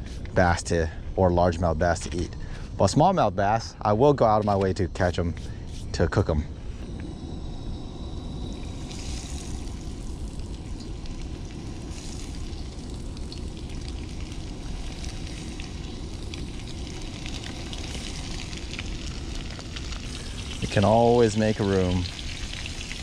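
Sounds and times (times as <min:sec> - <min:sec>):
low rumble: 0:06.3 - 0:21.0
fish frying in hot oil: 0:07.9 - 0:23.0.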